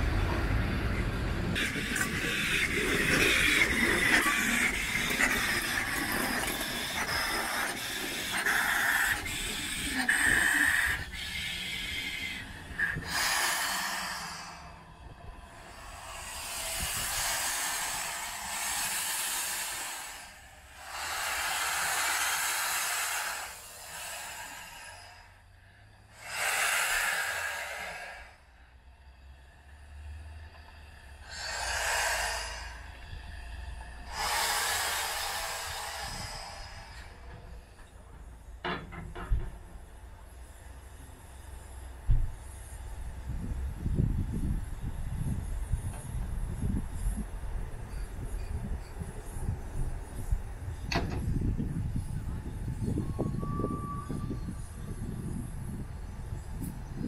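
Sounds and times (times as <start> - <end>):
steam locomotive rumbling: 0.0 - 57.0
escaping steam hisses: 1.6 - 28.8, 30.9 - 38.0.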